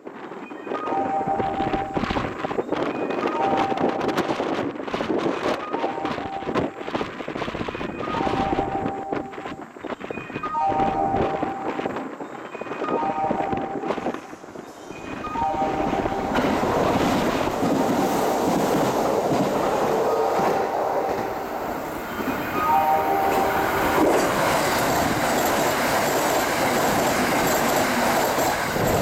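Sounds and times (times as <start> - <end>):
train rushing past on rails: 10.6 - 29.0.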